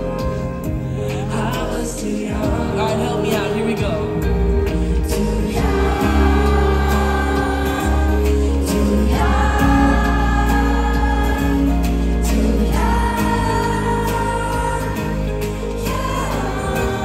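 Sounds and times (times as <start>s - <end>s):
live band music: 0.0s - 17.0s.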